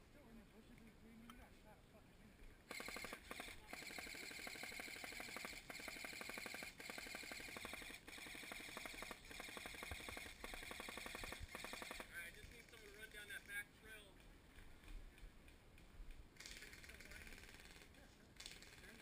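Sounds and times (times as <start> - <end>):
airsoft rifle full-auto bursts: 2.7 - 13.2, 16.4 - 19.0.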